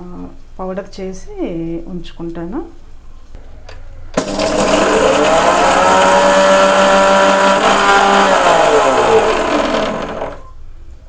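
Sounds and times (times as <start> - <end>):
mixer grinder motor whining: 4.2 - 10.5.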